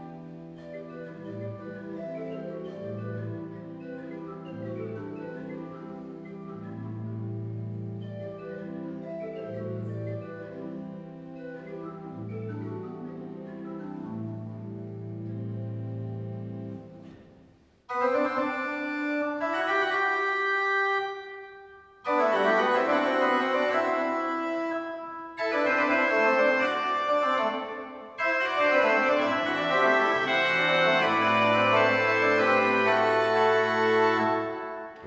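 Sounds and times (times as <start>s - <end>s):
pipe organ chords: 22.0s - 35.0s.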